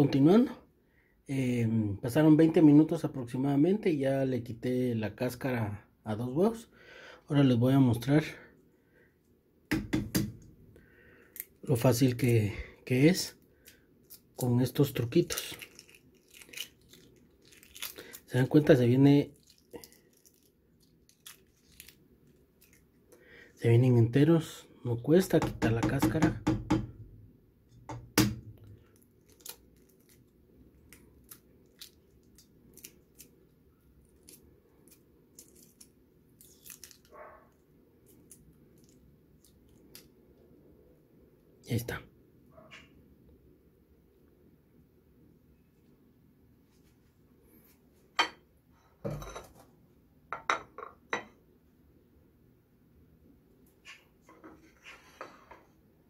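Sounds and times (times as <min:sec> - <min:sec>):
eggshell cracking and peeling: 0:15.2 - 0:18.6, 0:19.3 - 0:23.0, 0:28.2 - 0:37.1, 0:38.0 - 0:40.2.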